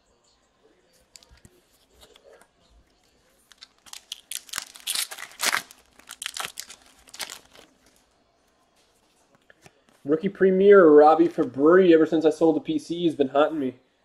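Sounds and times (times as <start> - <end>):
wrapper tearing and crinkling: 3.4 - 8.0.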